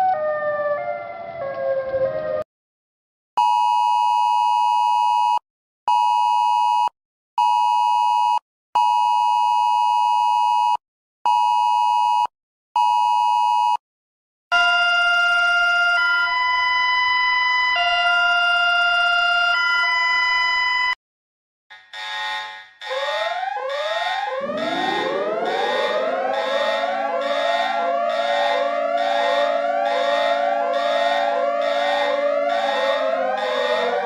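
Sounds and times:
electronic alert chord tones: 22.8 - 34.0
harsh two-note alert tone: 22.8 - 34.0.

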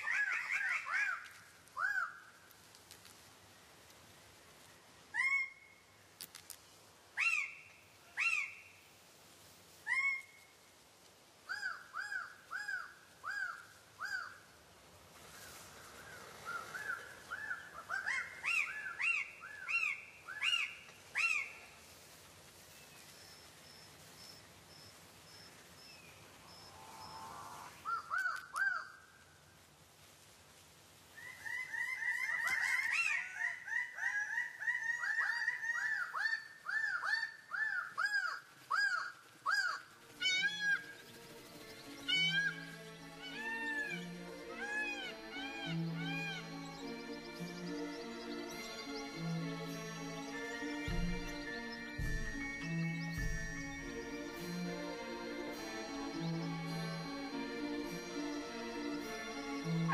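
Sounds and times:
birds calling loudly: 32.3 - 56.5.

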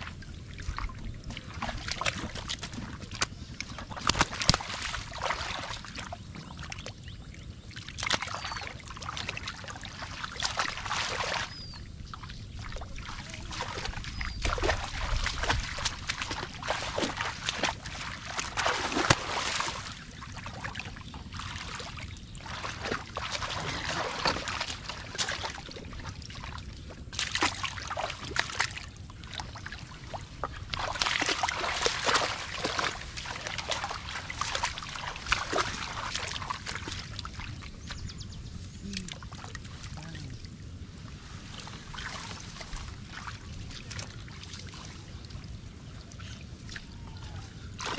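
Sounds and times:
muddy water splashing: 0.0 - 47.9.

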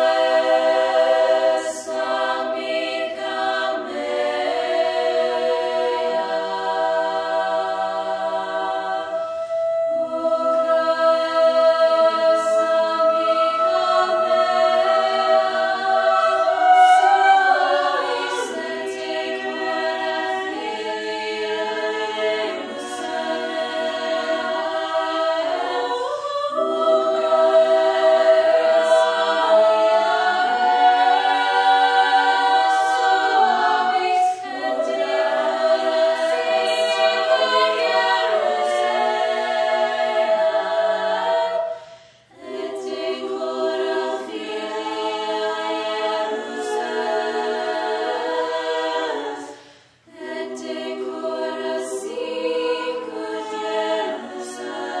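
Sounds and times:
choir singing unaccompanied: 0.0 - 55.0.

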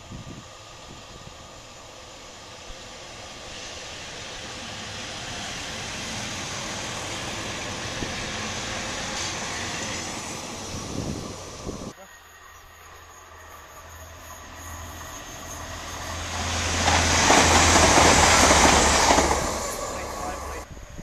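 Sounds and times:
train wheel noise: 0.0 - 12.0, 12.8 - 21.0
diesel train engine passing: 0.0 - 21.0
train wheel click: 16.7 - 19.9.

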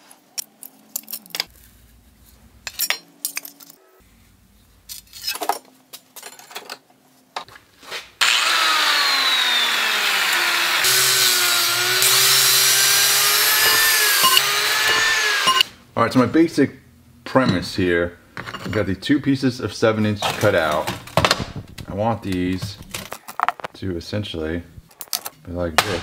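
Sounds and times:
angle grinder cutting metal: 8.2 - 15.7.

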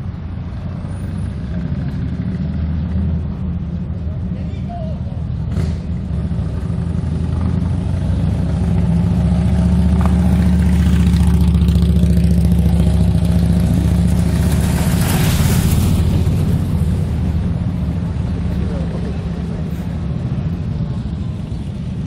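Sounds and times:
vehicle engine running: 5.1 - 22.0.

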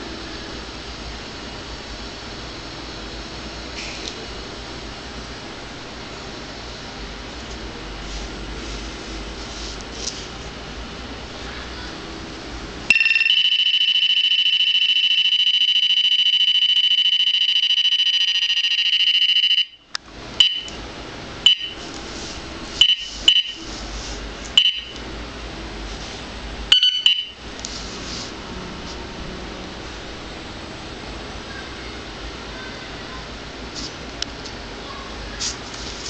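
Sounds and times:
radar detector short beeps: 12.9 - 19.8, 20.4 - 20.7, 21.5 - 21.8, 22.8 - 23.6, 24.6 - 24.9, 26.7 - 27.4
radar detector high tone: 12.9 - 20.8, 21.4 - 21.8, 22.8 - 23.7, 24.6 - 25.0, 26.7 - 27.4.

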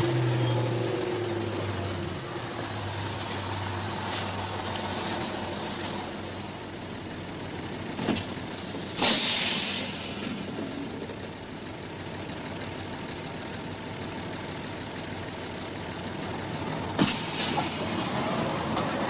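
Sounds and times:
bus engine running: 0.0 - 19.0
pneumatic door air hiss: 8.6 - 10.5, 17.0 - 19.0.

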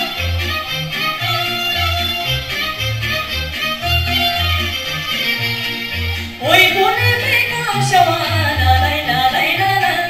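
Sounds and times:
bass line: 0.0 - 10.0.

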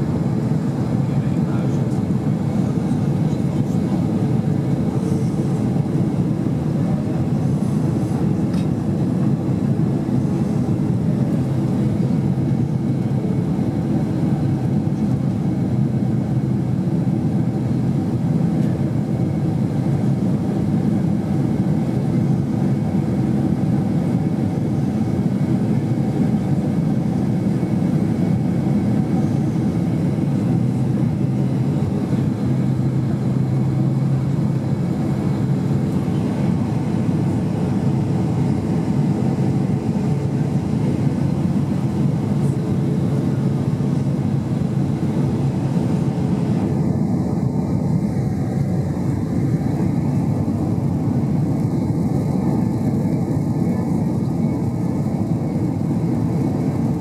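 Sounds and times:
jet engines droning: 0.0 - 57.0.

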